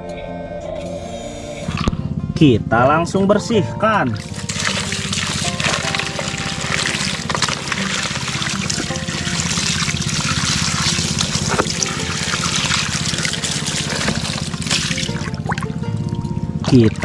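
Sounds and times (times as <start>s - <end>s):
hose water splashing on plastic: 4.1s - 17.0s.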